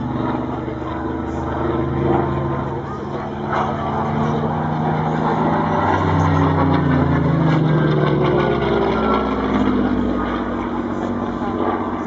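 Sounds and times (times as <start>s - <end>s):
propeller plane engine passing overhead: 0.0s - 12.0s.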